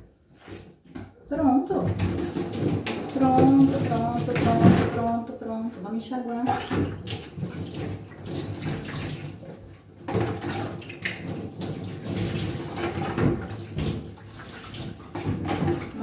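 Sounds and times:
tap water running into bucket: 0:01.7 - 0:05.3, 0:06.3 - 0:16.0
water splashing from cup: 0:01.9 - 0:05.1.

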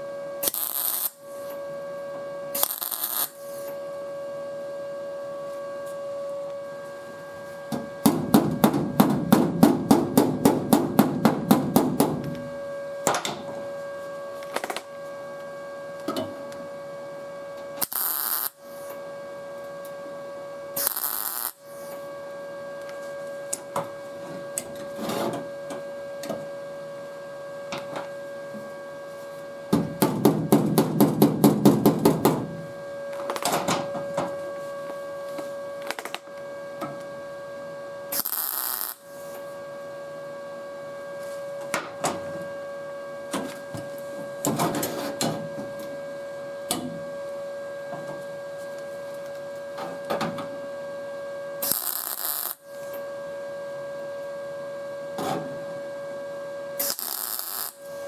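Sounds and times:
steady electrical hum: 0:00.0 - 0:58.0
welding crackle: 0:00.4 - 0:01.5, 0:02.6 - 0:03.7, 0:14.4 - 0:14.9, 0:17.8 - 0:18.9, 0:20.8 - 0:21.9, 0:33.1 - 0:33.5, 0:35.8 - 0:36.2, 0:38.1 - 0:39.3, 0:51.6 - 0:52.8, 0:56.8 - 0:58.0.

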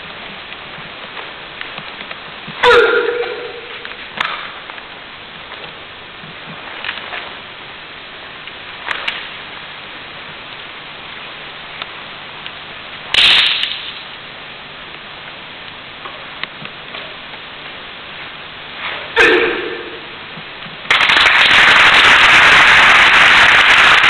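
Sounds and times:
steady hiss: 0:00.0 - 0:24.0
sharp cracks of strikes: 0:13.1 - 0:13.9.

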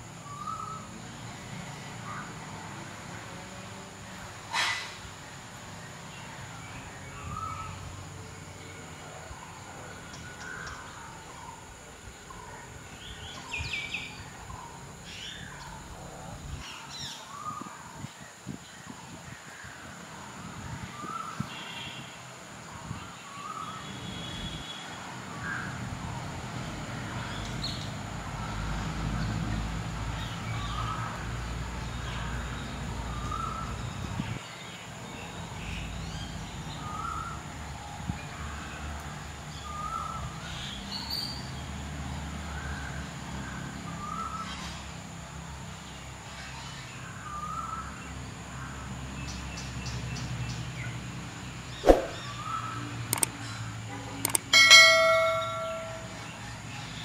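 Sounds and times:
sharp knock: 0:51.8 - 0:52.2
bird calling: 0:51.8 - 0:53.3, 0:54.3 - 0:56.4.

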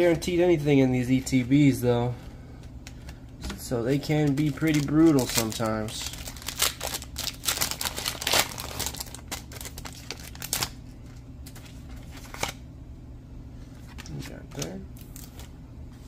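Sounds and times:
cards rustling and tapping: 0:02.6 - 0:12.6
foil wrapper crinkling and tearing: 0:03.9 - 0:12.6.

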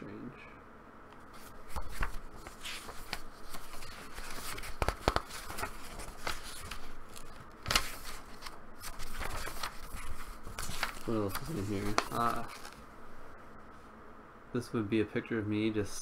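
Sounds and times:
paper snapping: 0:01.1 - 0:12.8
paper pages rustling: 0:01.2 - 0:12.8.

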